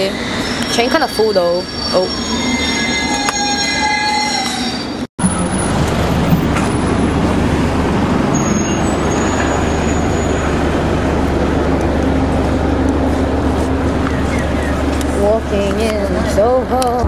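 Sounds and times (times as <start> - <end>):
train wheel squeal: 0.0 - 5.7, 8.3 - 10.6
steady train rumbling: 0.0 - 17.0.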